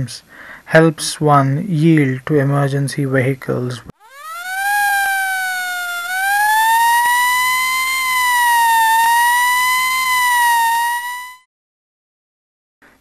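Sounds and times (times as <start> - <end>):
emergency siren wailing: 4.0 - 11.5.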